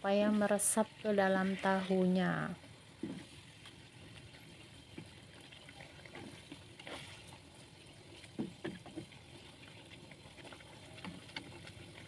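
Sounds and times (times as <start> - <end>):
gravy bubbling: 0.0 - 12.0
spatula scraping a wok: 1.1 - 2.4.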